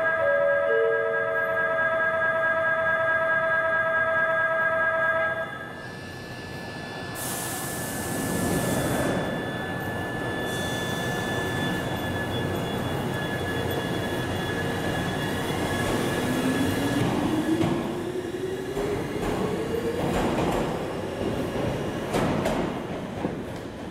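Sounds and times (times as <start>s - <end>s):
electric train motor whine: 5.5s - 17.0s.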